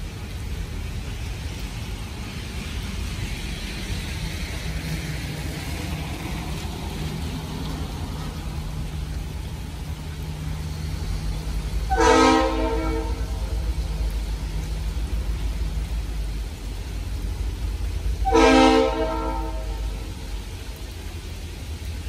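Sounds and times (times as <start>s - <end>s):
passing train rumble: 0.0s - 22.0s
traffic on wet street: 0.0s - 22.0s
locomotive air horn blast: 11.9s - 13.7s, 18.2s - 20.3s.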